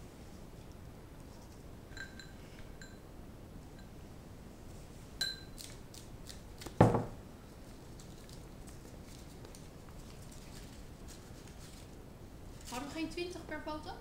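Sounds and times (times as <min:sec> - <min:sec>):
glass jar clink: 0:01.9 - 0:03.0, 0:05.2 - 0:05.5
jar thud on wooden table: 0:06.8 - 0:07.2
paper rustling: 0:07.9 - 0:12.0.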